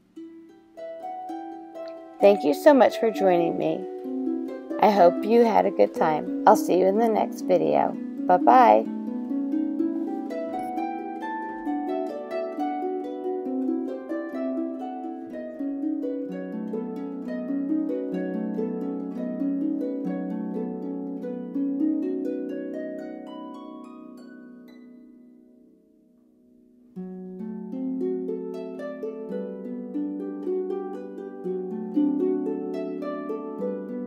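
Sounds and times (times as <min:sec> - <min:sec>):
plucked melody and chords: 0:00.2 - 0:25.5.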